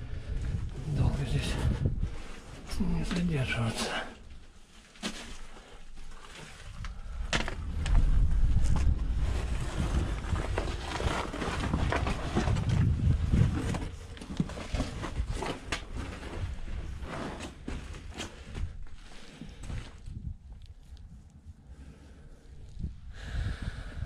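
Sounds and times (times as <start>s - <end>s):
wind buffeting microphone: 0.0s - 3.1s, 6.7s - 14.0s, 19.5s - 24.0s.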